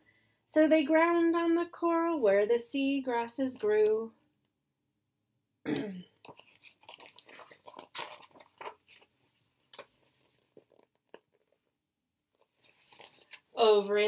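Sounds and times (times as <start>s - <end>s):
book pages rustling and crackling: 6.2s - 11.7s, 12.3s - 13.6s.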